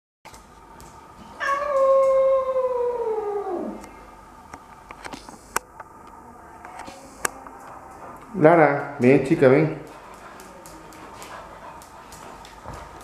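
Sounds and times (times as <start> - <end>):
cat yowling: 1.4 - 3.8.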